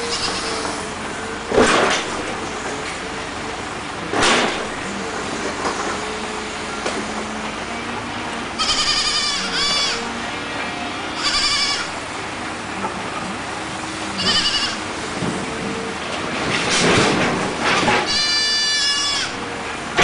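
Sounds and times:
kid goat bleating: 0:00.0 - 0:00.8, 0:08.6 - 0:10.2, 0:11.1 - 0:12.0, 0:14.2 - 0:14.8, 0:18.0 - 0:19.4.

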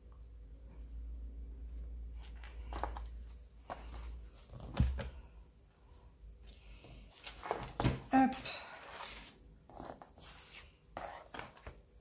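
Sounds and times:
low steady hum: 0:00.0 - 0:12.0
paper sliding: 0:08.7 - 0:11.7.

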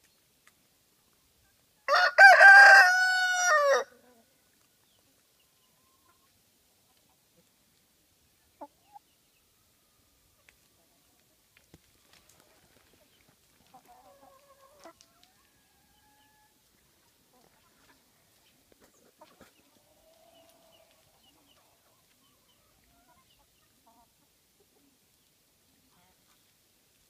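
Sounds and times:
chickens clucking: 0:03.4 - 0:26.5.

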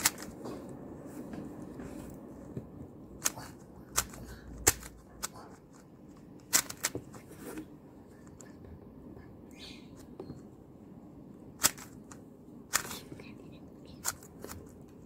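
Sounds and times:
puzzle cube turning clicks: 0:00.0 - 0:00.4, 0:03.2 - 0:07.2, 0:11.6 - 0:13.2, 0:13.9 - 0:15.0.

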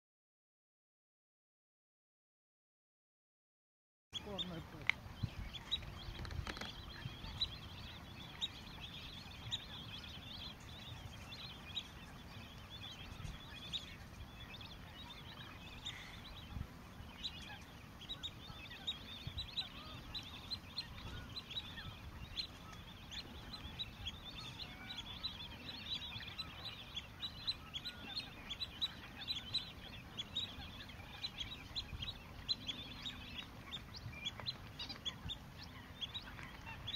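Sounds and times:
waterbirds calling: 0:04.2 - 0:36.9.

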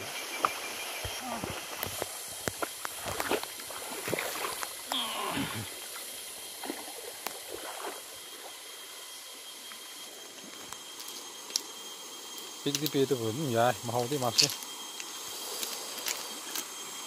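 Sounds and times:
faint high steady tones: 0:00.0 - 0:03.7, 0:08.0 - 0:17.0
steady high hiss: 0:00.0 - 0:17.0.

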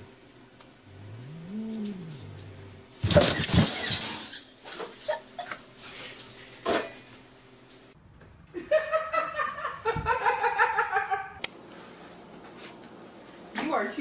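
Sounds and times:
woman laughing: 0:05.0 - 0:05.6, 0:08.5 - 0:11.4.

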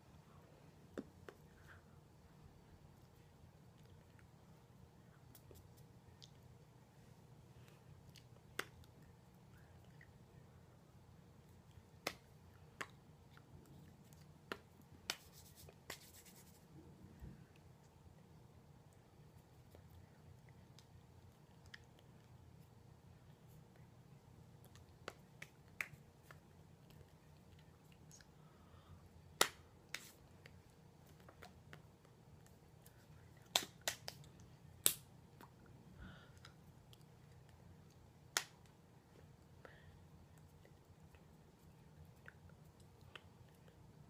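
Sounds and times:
hands slapping together: 0:14.5 - 0:16.6, 0:29.4 - 0:30.2, 0:33.5 - 0:35.1.

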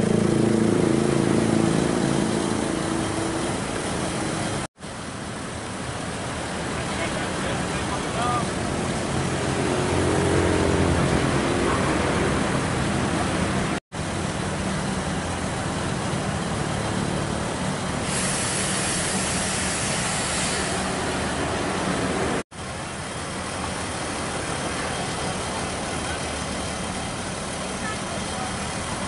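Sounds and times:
road traffic: 0:00.0 - 0:29.0
vehicle engine running nearby: 0:00.0 - 0:29.0
high hiss: 0:18.0 - 0:21.9.

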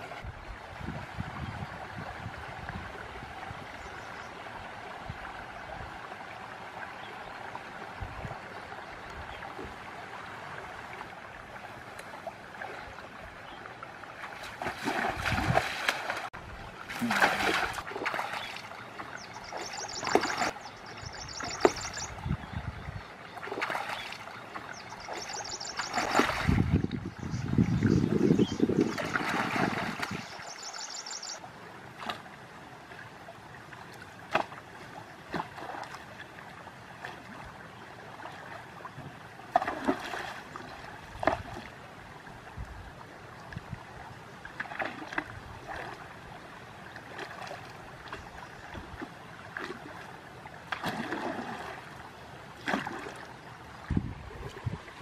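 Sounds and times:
person wading through water: 0:09.4 - 0:22.1, 0:31.8 - 0:42.3, 0:43.4 - 0:55.0
pole splashing in water: 0:14.2 - 0:16.3, 0:16.9 - 0:20.6, 0:23.4 - 0:24.2, 0:25.1 - 0:26.7, 0:34.3 - 0:34.6, 0:39.5 - 0:41.7, 0:44.6 - 0:46.0, 0:50.7 - 0:51.8, 0:52.6 - 0:53.3.

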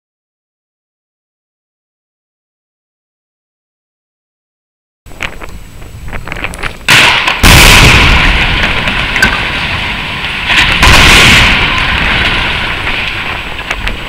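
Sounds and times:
rumble of towers collapsing: 0:05.1 - 0:14.0
demolition explosion blasts: 0:05.8 - 0:14.0.

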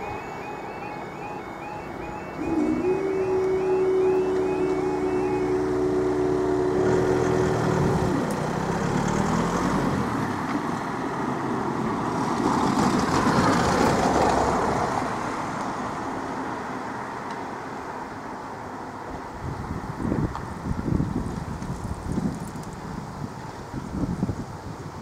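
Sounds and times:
low two-note hum: 0:00.0 - 0:08.4
vehicle engine pulling away: 0:00.0 - 0:11.3
vehicle passing close: 0:00.0 - 0:15.6.

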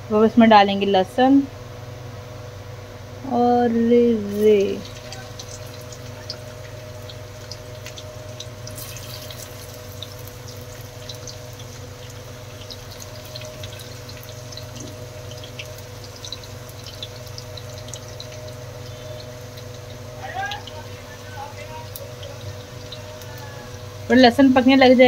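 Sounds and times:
garlic sizzling in hot oil: 0:04.2 - 0:25.0
crackles and pops: 0:04.3 - 0:20.9.

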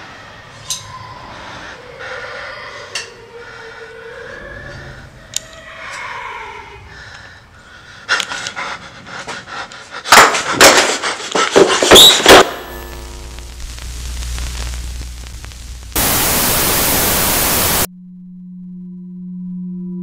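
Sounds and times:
person panting heavily: 0:06.8 - 0:11.8
low electronic hum: 0:12.4 - 0:20.0.

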